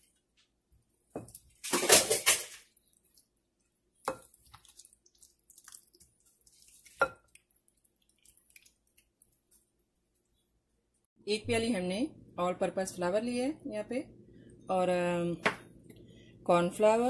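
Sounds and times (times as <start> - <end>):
wet squelching of marinade: 2.4 - 10.4.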